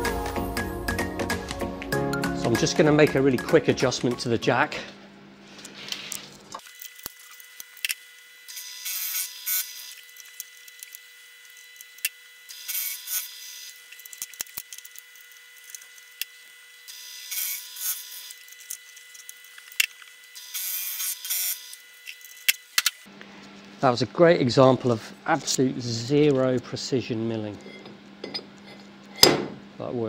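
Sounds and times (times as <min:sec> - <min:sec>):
milling cutter cutting metal: 0:06.6 - 0:23.0.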